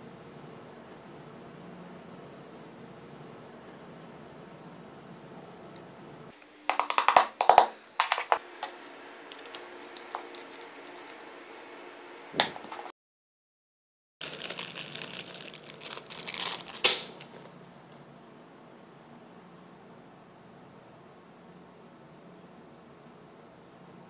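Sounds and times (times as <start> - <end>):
metal parts clicking and rattling: 6.7 - 8.4.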